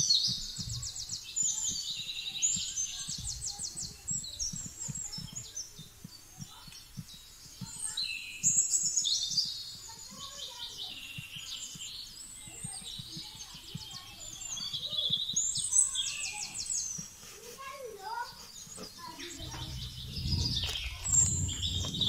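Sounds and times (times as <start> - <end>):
songbirds trilling and chirping: 0.0 - 22.0
soft low thuds: 0.2 - 8.0, 18.1 - 22.0.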